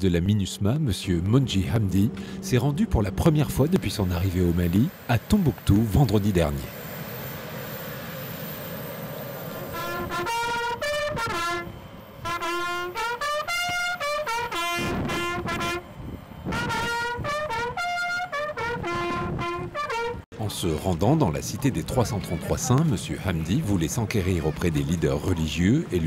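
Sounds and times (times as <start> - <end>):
bugle call on brass horn: 9.7 - 15.9, 16.5 - 20.2.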